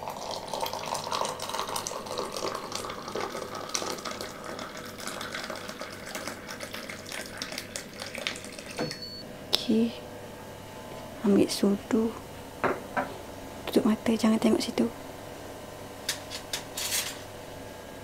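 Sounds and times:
water pouring into a mug: 0.0s - 8.8s.

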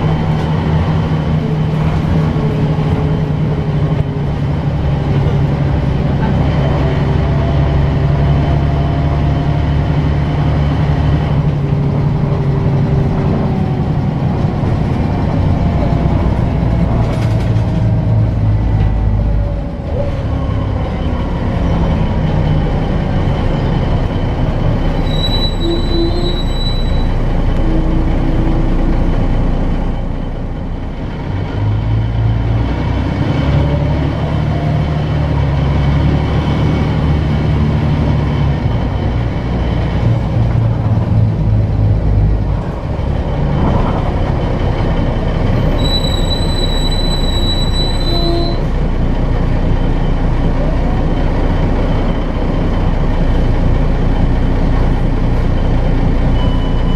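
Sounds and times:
bus engine drone: 0.0s - 56.9s
high-pitched squeal: 24.9s - 29.0s, 45.6s - 48.8s.

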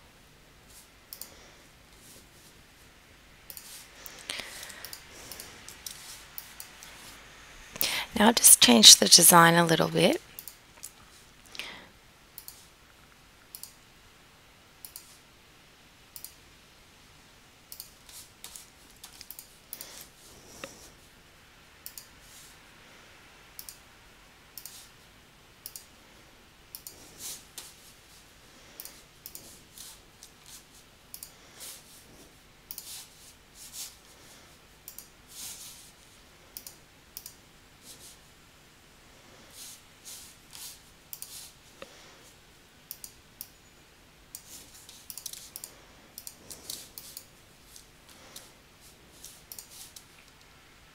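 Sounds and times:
computer mouse clicks: 1.1s - 1.3s, 3.4s - 7.0s, 10.4s - 11.0s, 12.4s - 12.7s, 13.5s - 13.8s, 14.8s - 15.2s, 16.1s - 16.4s, 17.7s - 20.8s, 21.8s - 22.2s, 23.6s - 23.9s, 24.5s - 24.9s, 25.6s - 25.9s, 26.7s - 27.0s, 28.8s - 29.6s, 31.1s - 31.4s, 32.7s - 33.1s, 34.8s - 35.1s, 36.5s - 37.4s, 40.5s - 41.9s, 42.9s - 43.6s, 44.3s - 47.3s, 49.2s - 50.5s.

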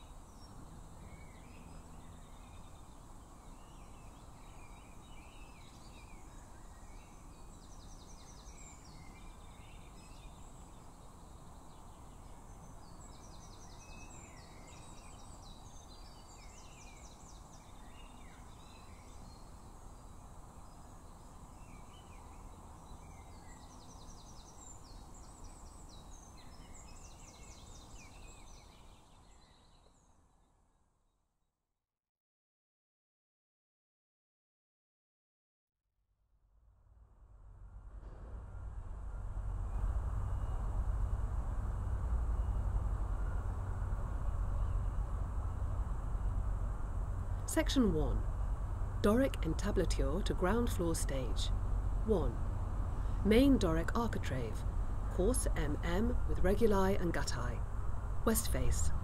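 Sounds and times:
low background rumble: 37.0s - 59.0s.

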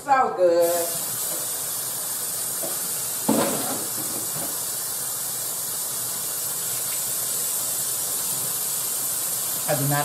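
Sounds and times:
steady hiss: 0.6s - 10.0s
kitchenware clattering: 2.6s - 4.6s.

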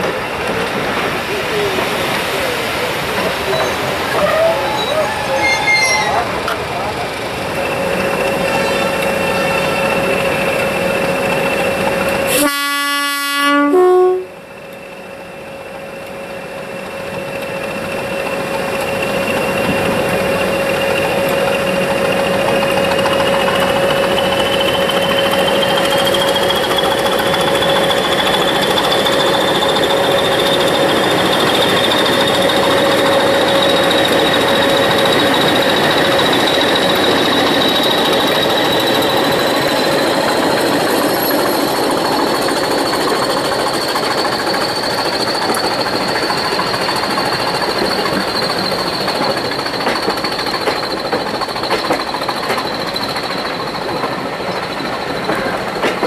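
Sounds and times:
diesel locomotive engine running hard: 0.0s - 56.0s
two-tone locomotive horn: 12.3s - 14.4s.

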